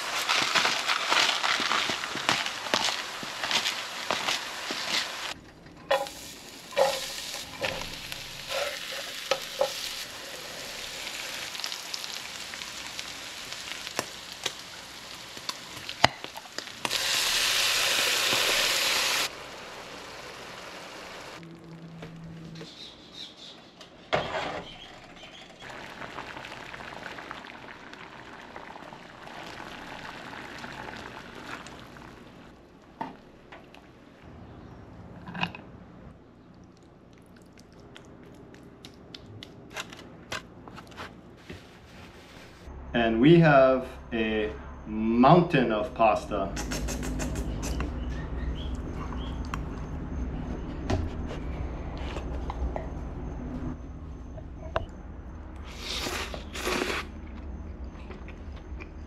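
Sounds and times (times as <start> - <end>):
meat sizzling in a frying pan: 6.0 - 21.4
sauce sizzling in hot pan: 6.0 - 21.4.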